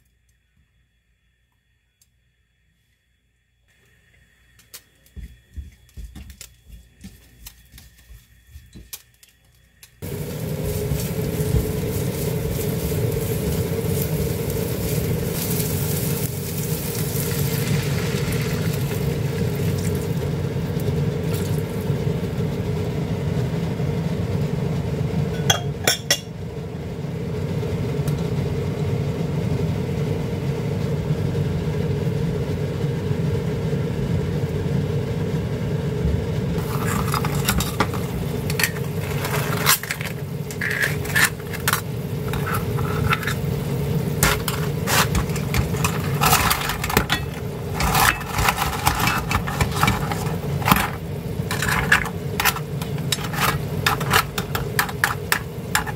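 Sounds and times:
spatula scraping frying pan: 0:10.0 - 0:17.8, 0:36.6 - 0:55.9.

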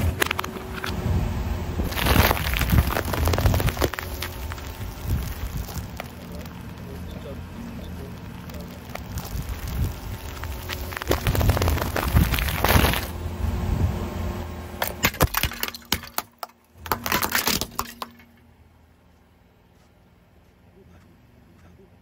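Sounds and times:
sharp cracks of brittle objects: 0:01.9 - 0:13.2, 0:14.8 - 0:18.4
tyre crushing crisp packets: 0:01.9 - 0:13.2.

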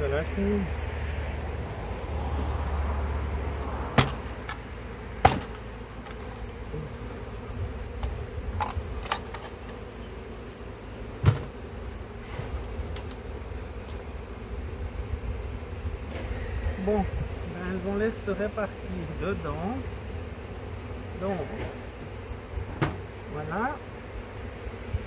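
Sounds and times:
bees buzzing: 0:00.0 - 0:25.0
wooden hive boxes knocking: 0:03.9 - 0:07.1, 0:07.9 - 0:09.9, 0:11.1 - 0:11.7, 0:21.3 - 0:23.1.

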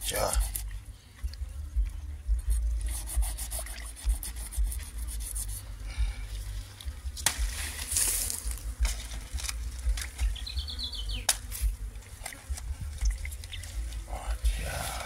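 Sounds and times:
low rumble: 0:00.6 - 0:03.3
sharp crack: 0:07.2 - 0:10.2, 0:11.2 - 0:11.6.

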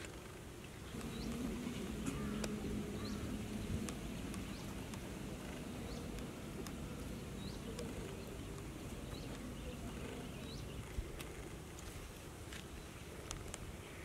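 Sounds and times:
faint clicks: 0:00.0 - 0:14.0
low steady rumble: 0:00.1 - 0:14.0
small bird chirping: 0:00.6 - 0:11.6.

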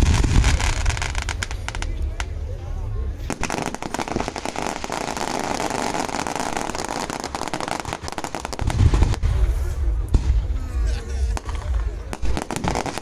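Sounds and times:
deep low rumble: 0:00.0 - 0:04.4, 0:08.5 - 0:12.4
fireworks crackling: 0:00.0 - 0:13.0.

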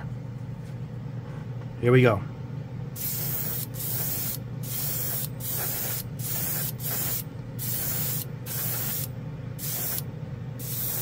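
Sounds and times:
steady low hum: 0:00.0 - 0:11.0
airbrush hissing in short blasts: 0:03.0 - 0:10.0, 0:10.6 - 0:11.0.

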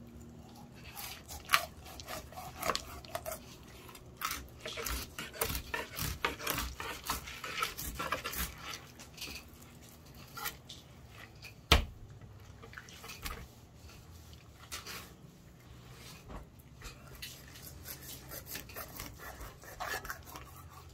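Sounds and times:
knife cutting fish on board: 0:00.9 - 0:08.8, 0:17.3 - 0:20.9.

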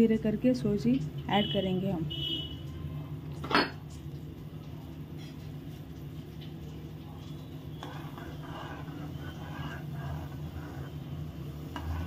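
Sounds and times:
water boiling in pan: 0:03.7 - 0:12.0.

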